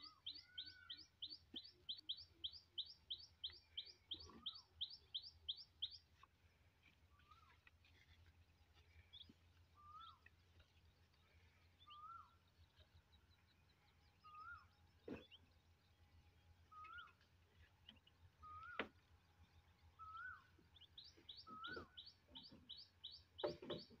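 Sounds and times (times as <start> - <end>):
high bird chirps: 20.0 - 24.0.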